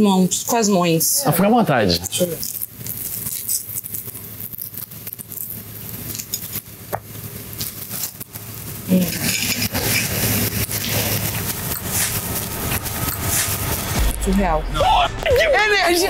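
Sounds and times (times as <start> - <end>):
loud dense noise: 8.9 - 16.0.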